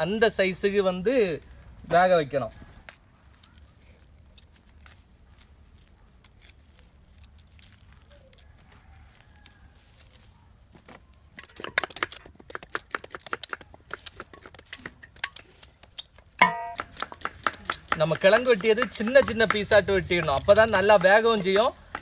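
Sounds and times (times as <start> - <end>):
crisp knife cuts: 2.9 - 10.4
knife scraping roots: 2.9 - 10.4.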